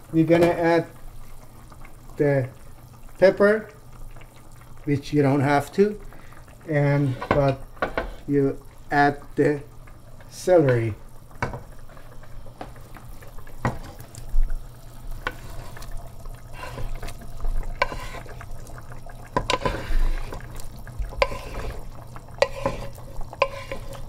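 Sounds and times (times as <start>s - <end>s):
liquid sloshing in pot: 5.6s - 24.0s
utensil knocking on cookware: 21.2s - 21.7s, 22.4s - 23.9s.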